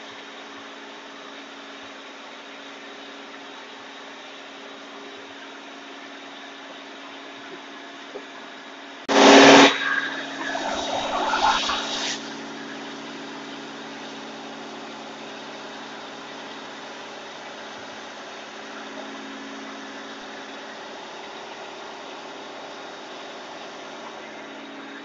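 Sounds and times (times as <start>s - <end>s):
sudden loud burst of noise: 9.1s - 14.2s.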